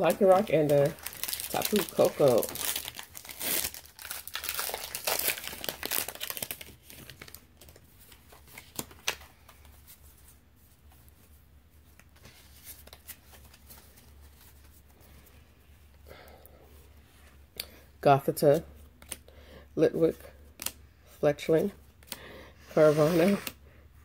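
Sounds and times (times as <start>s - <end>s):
foil wrapper crinkling and tearing: 0.0s - 7.8s
cards rustling and ticking: 0.0s - 10.2s, 18.8s - 19.3s.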